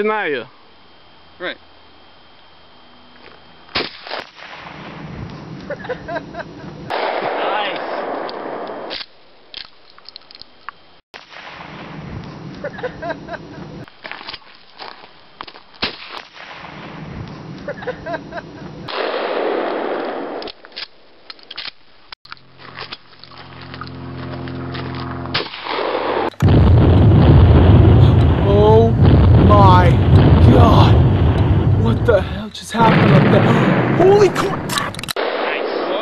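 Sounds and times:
steady droning hum: 0:00.0 - 0:07.1, 0:08.0 - 0:35.1
shotgun shots: 0:03.7 - 0:05.2, 0:06.9 - 0:09.1, 0:11.2 - 0:12.2, 0:15.8 - 0:17.2, 0:18.9 - 0:20.6, 0:25.3 - 0:26.6, 0:32.8 - 0:36.0
very loud blast: 0:06.9 - 0:08.9, 0:25.3 - 0:36.0.

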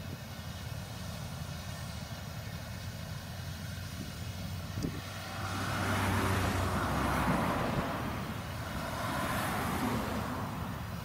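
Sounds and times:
combine harvester drone: 0:00.0 - 0:11.0
rushing noise: 0:03.7 - 0:11.0.

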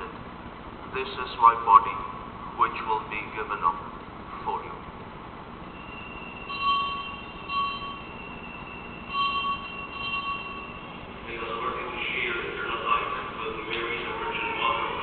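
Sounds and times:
altar bells ringing: 0:05.7 - 0:15.0.

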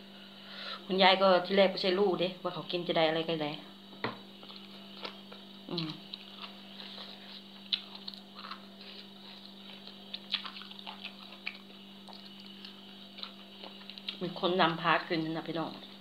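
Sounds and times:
steady low hum: 0:00.0 - 0:16.0
wet chewing mouth sounds: 0:04.4 - 0:14.3.

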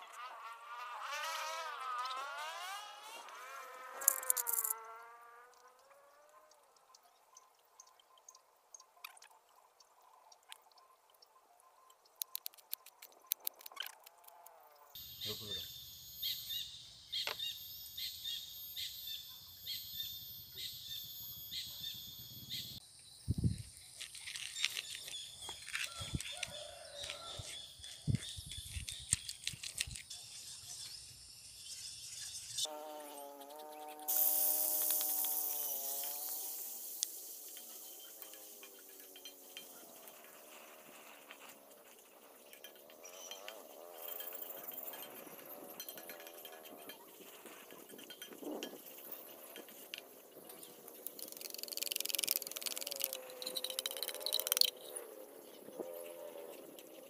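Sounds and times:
flying insect buzzing: 0:00.0 - 0:06.5, 0:31.7 - 0:42.1, 0:50.5 - 0:56.5
faint insect drone: 0:00.0 - 0:27.6, 0:28.9 - 0:57.0
bird chirping: 0:15.0 - 0:38.5, 0:48.6 - 0:57.0.

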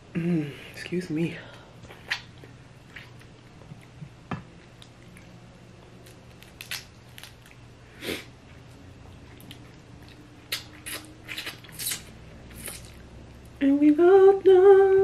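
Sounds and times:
food squishing pulled apart: 0:06.0 - 0:07.6
wet mouth smacks and chewing: 0:09.3 - 0:13.0.

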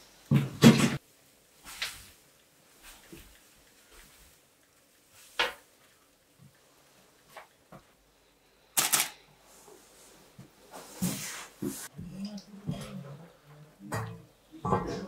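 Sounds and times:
rattling cluster of clicks: 0:08.8 - 0:09.2.

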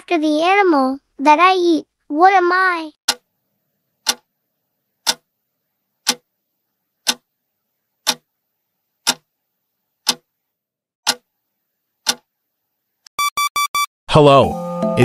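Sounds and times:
clock ticking: 0:03.1 - 0:03.3, 0:04.0 - 0:04.3, 0:05.0 - 0:05.3, 0:06.0 - 0:06.3, 0:07.0 - 0:07.2, 0:08.0 - 0:08.2, 0:09.0 - 0:09.2, 0:10.0 - 0:10.3, 0:11.0 - 0:11.3, 0:12.0 - 0:12.2.

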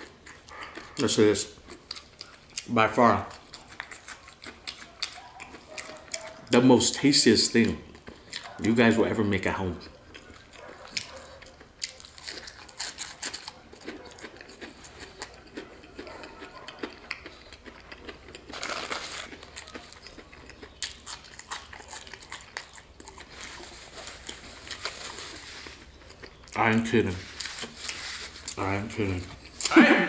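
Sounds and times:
crunchy chewing: 0:00.0 - 0:30.0.

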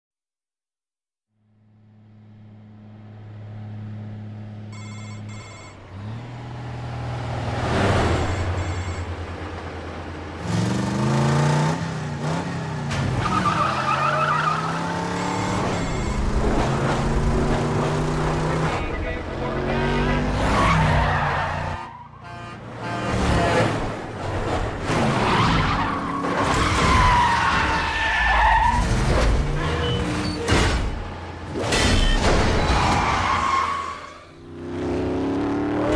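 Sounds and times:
diesel truck engine rumbling: 0:02.3 - 0:34.3
electronic phone ringing: 0:04.7 - 0:05.8, 0:08.2 - 0:09.1
tire squeal: 0:13.1 - 0:16.5, 0:20.4 - 0:22.4, 0:24.9 - 0:30.5, 0:32.0 - 0:34.4.

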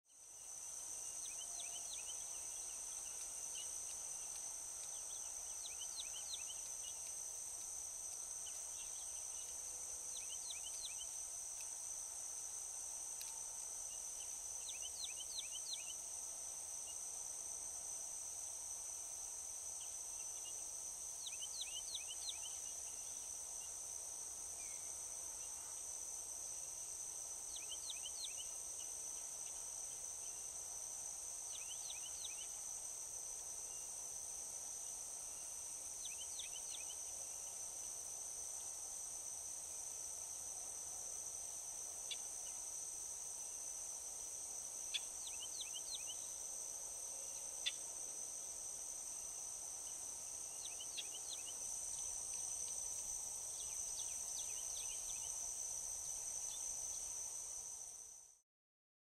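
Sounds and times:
crickets chirring: 0:00.2 - 0:58.4
bird singing: 0:45.0 - 0:46.2, 0:50.6 - 0:51.6.

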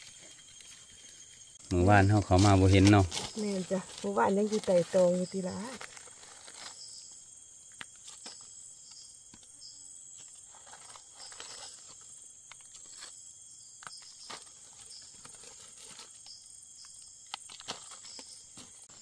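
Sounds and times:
insects buzzing: 0:00.0 - 0:19.0
pulsing insect chirr: 0:00.0 - 0:19.0
footsteps on dry leaves: 0:01.9 - 0:07.0.

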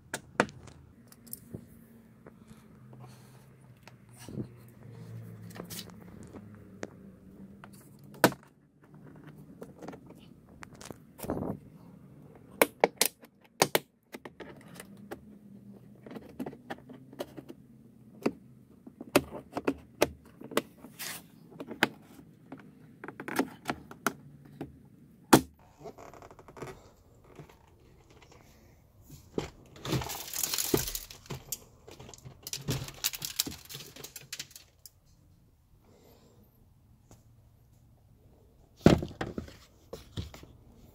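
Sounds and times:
door panel rustling and scraping: 0:26.4 - 0:34.6.

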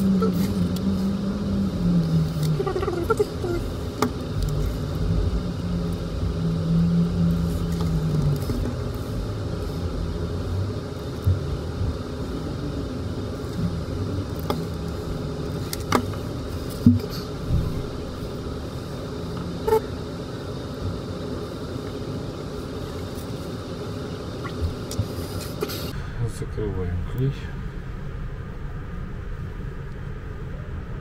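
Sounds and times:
low rumble: 0:00.0 - 0:31.0.

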